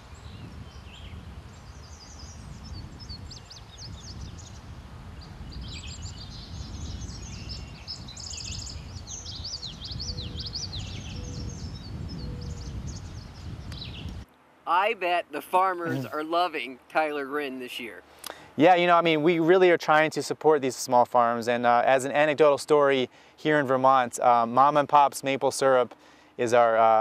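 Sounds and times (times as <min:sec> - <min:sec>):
songbirds chirping and singing: 0:00.0 - 0:14.2.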